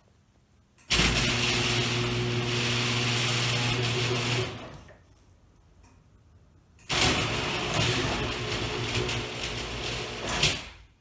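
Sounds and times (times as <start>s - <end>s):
garage door opener humming: 0.9s - 4.9s, 6.8s - 10.8s.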